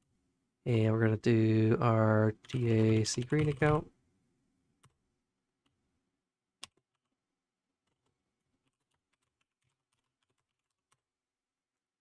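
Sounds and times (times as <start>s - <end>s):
keyboard typing: 2.3s - 3.9s, 6.6s - 7.2s, 7.8s - 11.1s.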